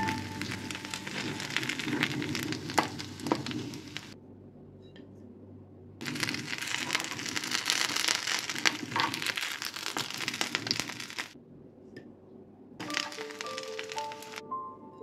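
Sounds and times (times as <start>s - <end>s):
fritters sizzling in hot oil: 0.0s - 4.2s, 6.0s - 11.4s, 12.8s - 14.4s.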